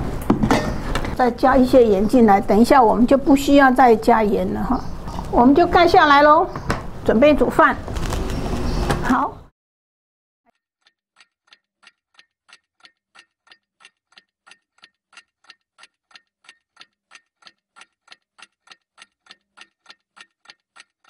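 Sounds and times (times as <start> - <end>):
faint clock ticking: 10.8 - 21.0.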